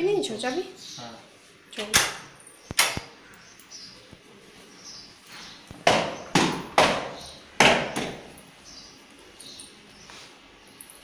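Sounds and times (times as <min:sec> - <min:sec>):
sharp echoing knocks: 0:05.8 - 0:08.3.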